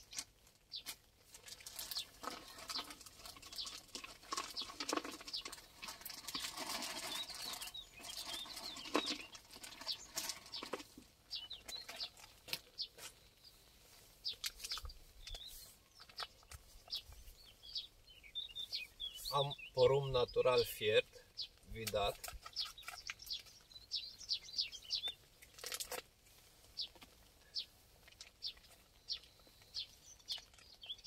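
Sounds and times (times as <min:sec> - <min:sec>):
seed grains pattering: 0:00.0 - 0:13.2.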